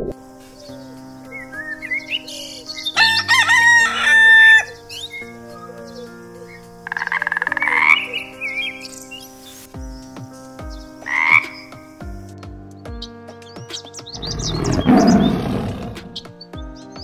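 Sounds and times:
rooster crowing: 3.0 - 4.8
frog croaking: 6.4 - 8.8, 11.0 - 11.7, 14.2 - 16.2
short chirping calls: 13.7 - 16.3.

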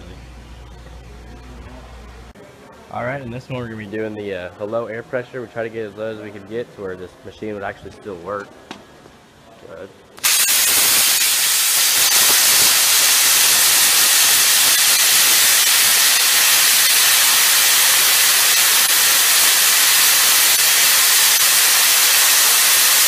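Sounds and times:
plasma cutter hissing: 10.2 - 23.0.

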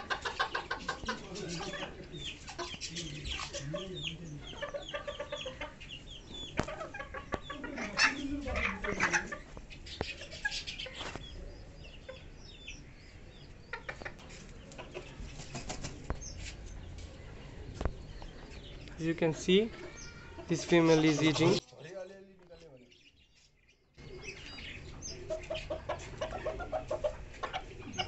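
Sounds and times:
chickens clucking: 0.0 - 28.0
beaks tapping on concrete: 0.1 - 12.7, 13.4 - 19.1.

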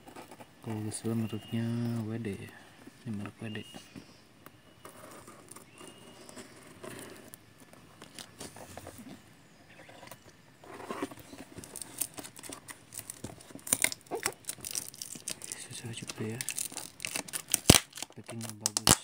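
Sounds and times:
plastic film rustling and crinkling: 11.2 - 19.0.

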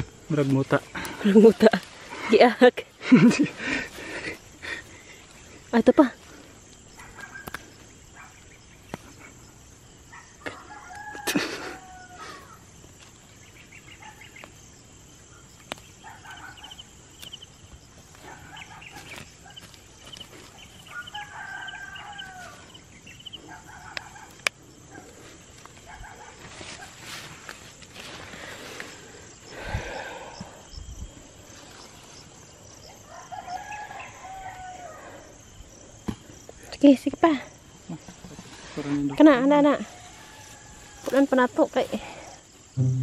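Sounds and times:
rooster crowing: 10.5 - 12.5, 20.8 - 23.8, 33.1 - 35.3, 39.9 - 41.2.

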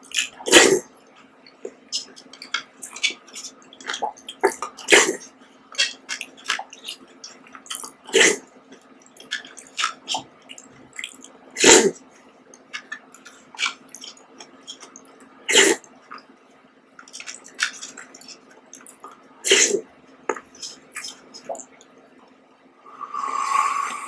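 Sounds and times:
chewing and wet mouth sounds: 0.0 - 16.4, 17.0 - 19.6, 20.3 - 22.4.

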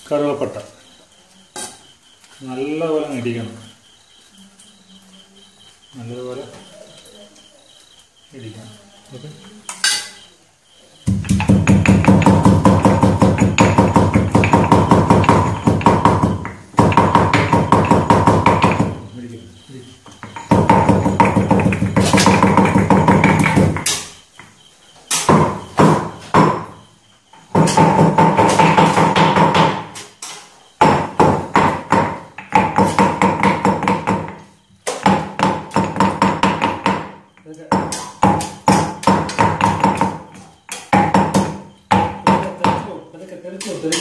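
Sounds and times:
pestle striking stone mortar: 11.0 - 19.1, 20.2 - 24.1, 27.5 - 30.0, 30.8 - 42.9.

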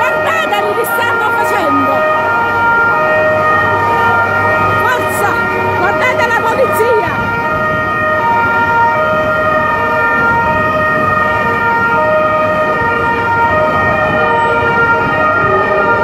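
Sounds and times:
street noise: 0.0 - 16.0
two-tone police siren: 0.0 - 16.0.

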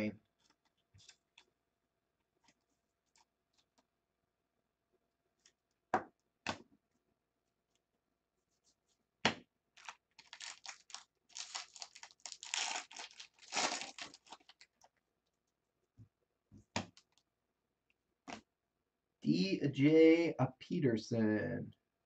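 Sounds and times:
foil wrapper tearing and crinkling: 9.8 - 14.8.

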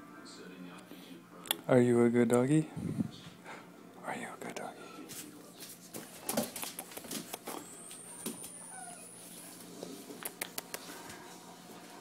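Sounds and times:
puppy claws and paws on wood floor: 5.1 - 8.6.

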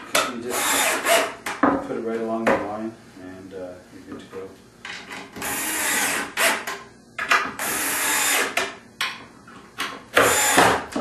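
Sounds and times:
power drill driving screws: 0.5 - 1.4, 5.4 - 6.7, 7.6 - 8.6, 10.2 - 10.8.

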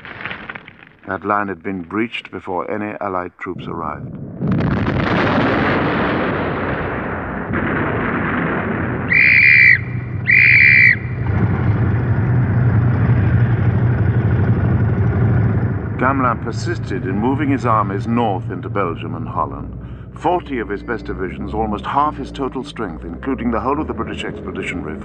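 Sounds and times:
explosion rumbling: 0.0 - 2.4, 3.5 - 25.0
short high-pitched blasts: 9.1 - 11.4
motorcycle engines running: 11.2 - 22.3.

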